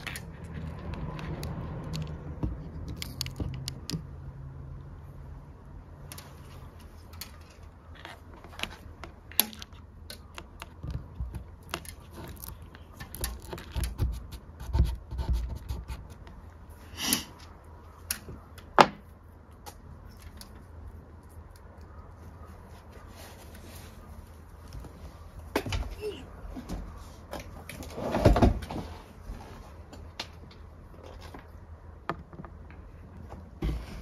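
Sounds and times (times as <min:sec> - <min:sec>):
clicks taps and rustles: 0:00.0 - 0:04.2, 0:06.0 - 0:16.6.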